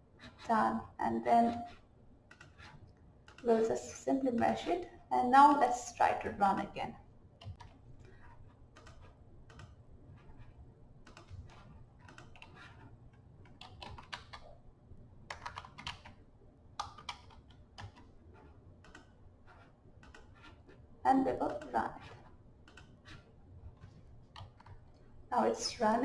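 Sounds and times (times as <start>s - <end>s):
typing on computer keyboard: 1.7s - 3.6s, 8.7s - 9.8s, 10.4s - 12.8s, 13.4s - 14.6s, 15.3s - 16.2s, 16.8s - 20.6s, 21.4s - 23.2s, 24.3s - 24.8s.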